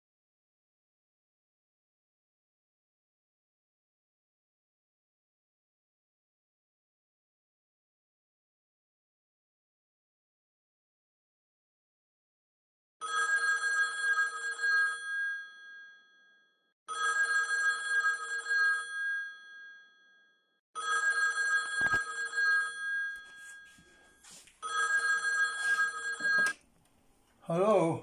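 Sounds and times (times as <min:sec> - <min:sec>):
telephone ringing: 0:13.0 - 0:16.1, 0:16.9 - 0:26.6.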